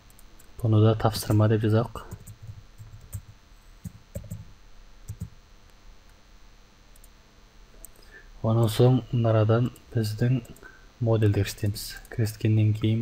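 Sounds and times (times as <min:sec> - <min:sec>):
computer keyboard clicks: 0:02.1 - 0:04.4, 0:05.1 - 0:05.3.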